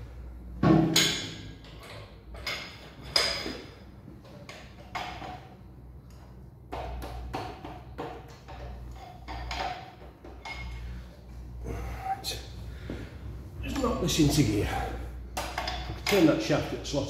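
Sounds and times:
metallic clanks of tools: 0.9 - 5.5, 8.2 - 10.9, 15.4 - 16.5.

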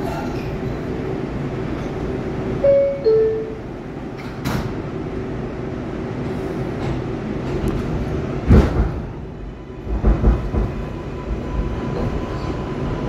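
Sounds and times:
subway car rumble: 0.0 - 13.0
sliding doors thumping shut: 8.4 - 9.2.

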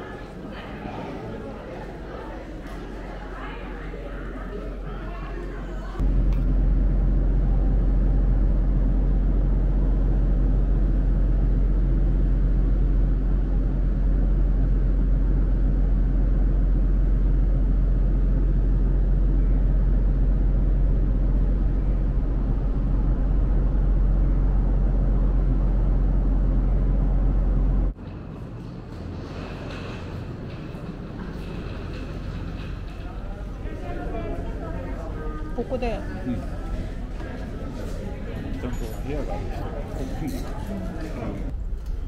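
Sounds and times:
indoor room noise: 0.0 - 42.0
ship engine machinery droning: 0.0 - 42.0.

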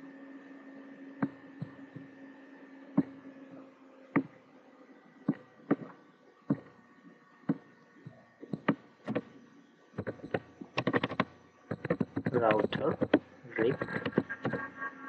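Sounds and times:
keyboard keystrokes: 10.0 - 14.6.

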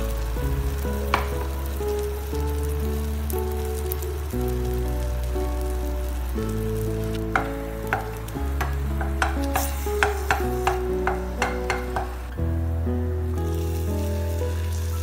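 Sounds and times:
background music: 0.0 - 15.0
food frying: 0.0 - 15.0
spatula knocking on frying pan: 7.3 - 12.3.

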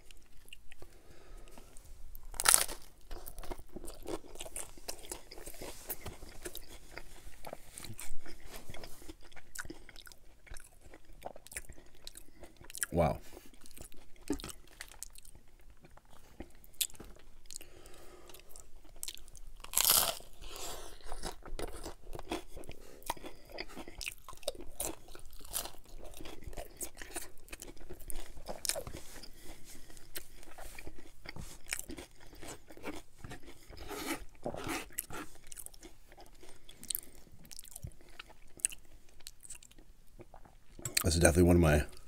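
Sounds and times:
chewing crackle: 0.0 - 41.1
crunching taco shells: 0.0 - 41.2.

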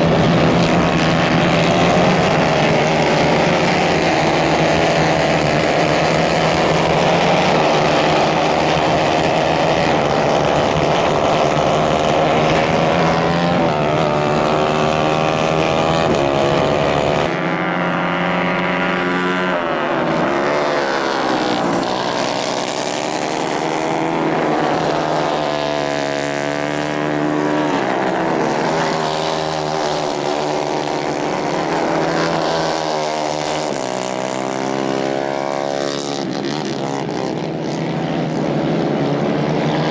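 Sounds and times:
racing kart engines: 0.0 - 39.9.

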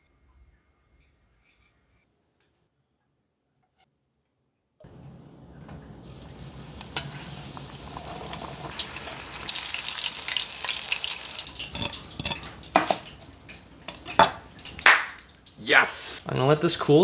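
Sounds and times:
deep-frying in hot oil sizzle: 5.7 - 16.2.

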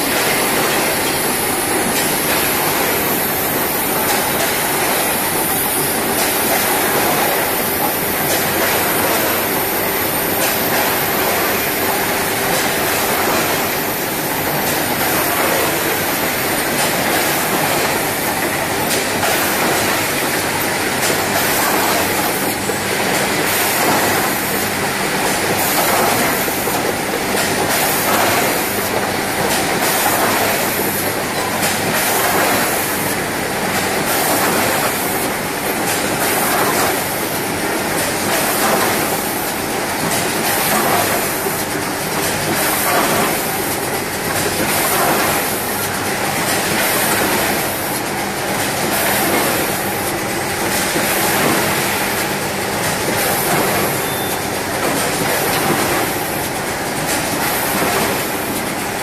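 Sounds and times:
machine mechanical clatter: 33.7 - 59.0.

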